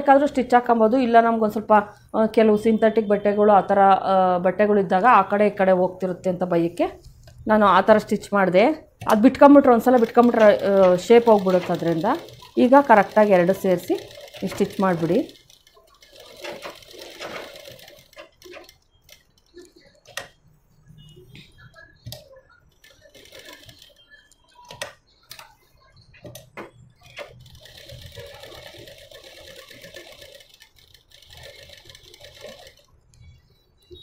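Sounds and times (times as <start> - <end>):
sewing machine stitching: 9.6 - 20.3, 22.8 - 24.1, 27.0 - 32.9.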